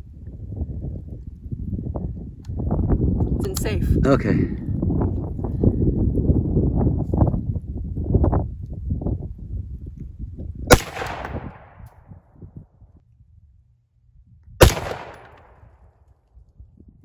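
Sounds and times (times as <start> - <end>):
rifle shots with echo: 10.7 - 11.8, 14.6 - 15.8.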